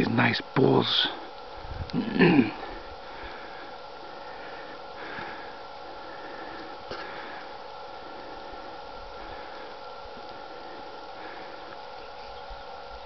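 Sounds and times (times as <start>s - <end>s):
background hiss: 0.0s - 13.0s
faint hum: 0.0s - 13.0s.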